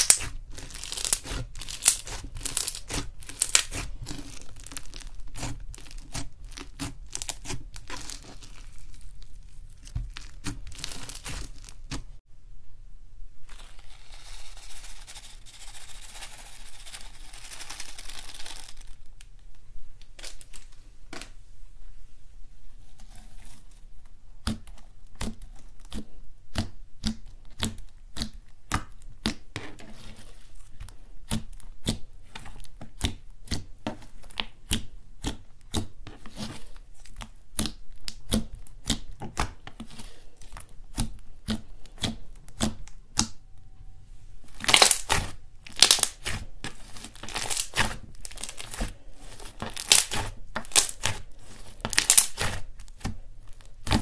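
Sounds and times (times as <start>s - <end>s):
slime crackling when stretched: 0.0s - 12.2s, 16.5s - 19.2s, 44.5s - 54.0s.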